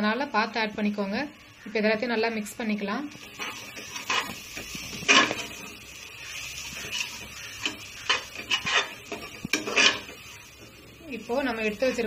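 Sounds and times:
metal spatula scraping a pot: 3.2s - 10.8s.

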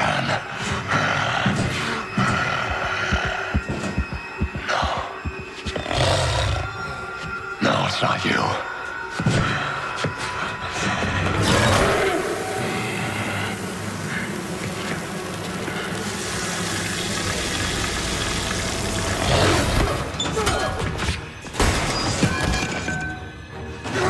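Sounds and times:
low drone: 8.6s - 20.2s
rushing roar: 11.1s - 20.1s.

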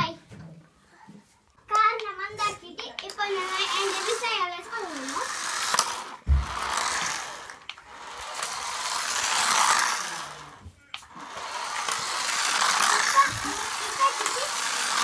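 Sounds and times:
toy car electric motor whirring: 3.0s - 15.0s.

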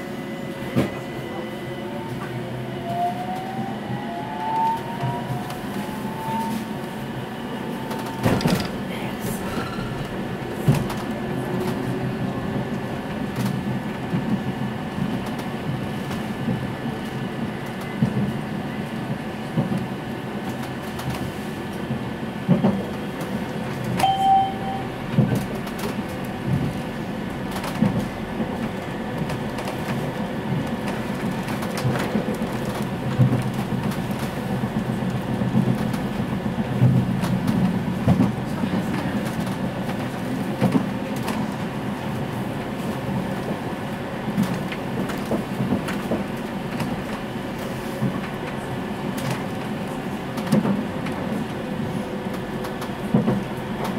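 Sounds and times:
tram rumbling: 0.0s - 53.9s
brief high tone: 24.0s - 25.0s.

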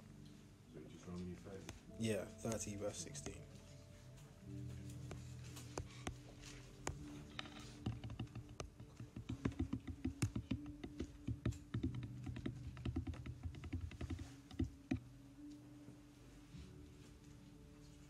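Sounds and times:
computer keyboard typing: 6.9s - 15.0s.

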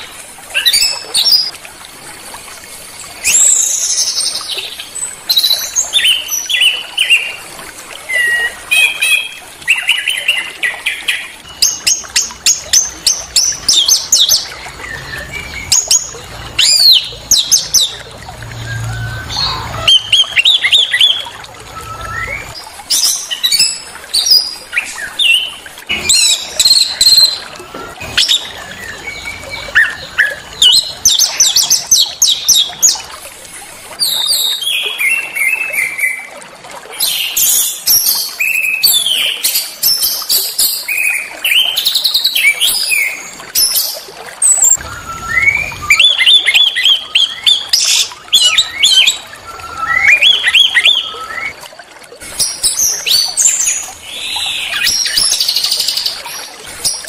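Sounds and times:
small songbirds chirping and trilling: 8.1s - 33.1s.

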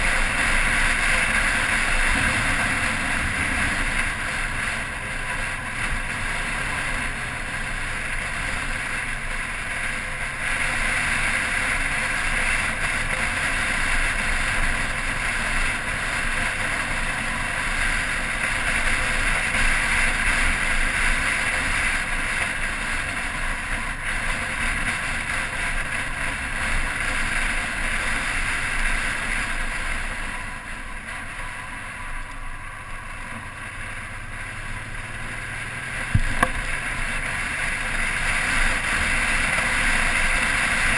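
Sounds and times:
motorcycle engine running: 0.0s - 40.9s
wind on microphone: 29.8s - 37.1s.

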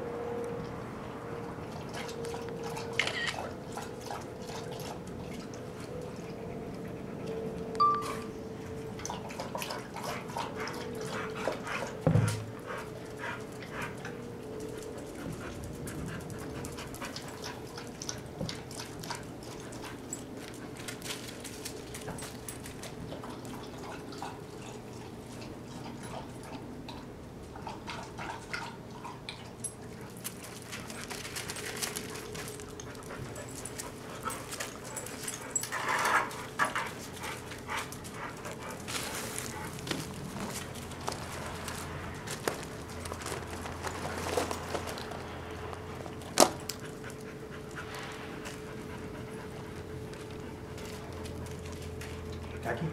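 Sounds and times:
dog lapping water from bowl: 1.7s - 6.4s, 8.8s - 12.6s, 16.4s - 20.2s, 23.1s - 29.9s.

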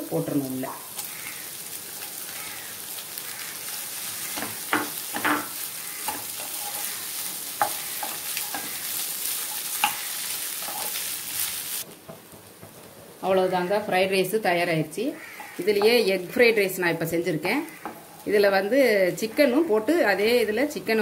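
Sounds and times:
rice sizzling in a pan: 0.0s - 13.8s, 17.5s - 20.4s
spatula scraping a pan: 3.3s - 11.6s.

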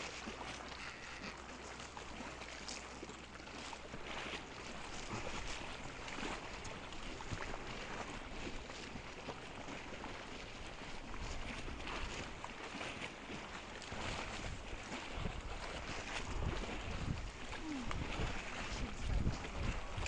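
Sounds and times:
water lapping: 0.0s - 20.0s
boat engine idling: 0.2s - 20.0s.

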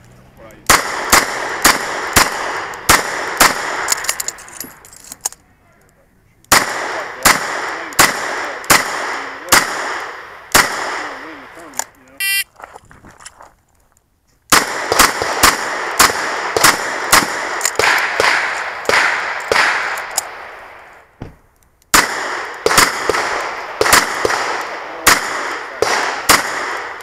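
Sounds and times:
revolver firing: 0.6s - 4.0s.

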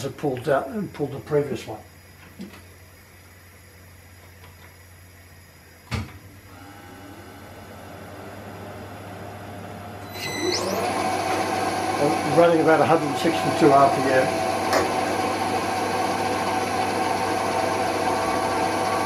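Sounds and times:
drill cutting with rising whine: 10.0s - 19.0s
spindle motor running: 10.0s - 19.0s.

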